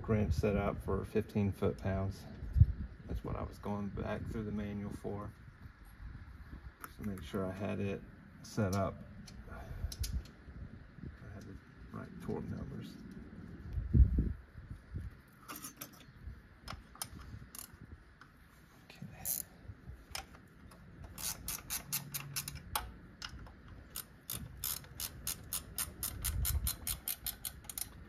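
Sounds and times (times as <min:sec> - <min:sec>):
hand ratchet clicking: 0:20.2 - 0:28.0.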